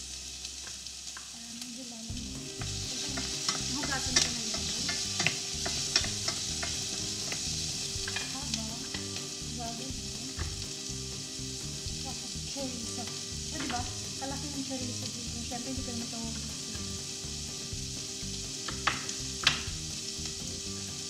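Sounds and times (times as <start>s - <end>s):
onion sizzling in frying pan: 0.0s - 21.0s
utensils clicking and knocking: 2.6s - 9.1s.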